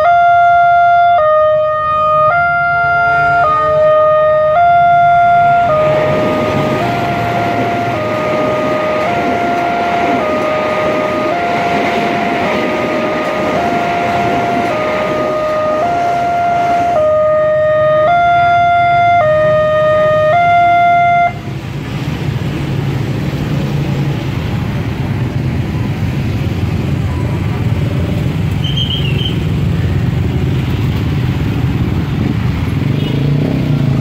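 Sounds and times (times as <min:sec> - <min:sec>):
two-tone electronic siren: 0:00.0 - 0:21.5
cars and motorcycles passing: 0:00.0 - 0:34.0
passing train rolling: 0:00.0 - 0:34.0.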